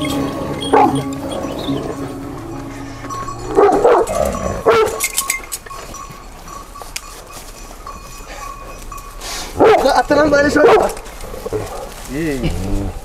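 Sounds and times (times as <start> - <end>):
large dogs barking: 0.3 - 2.1, 3.5 - 5.2, 9.5 - 12.0.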